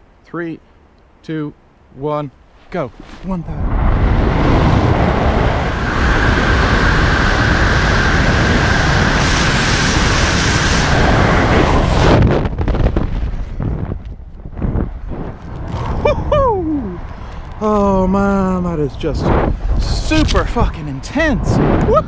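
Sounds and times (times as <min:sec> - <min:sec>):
freefall wind rushing over microphone: 0:01.3 - 0:22.0
gusty flapping wind: 0:02.4 - 0:22.0
high whistle in airflow: 0:04.2 - 0:12.2.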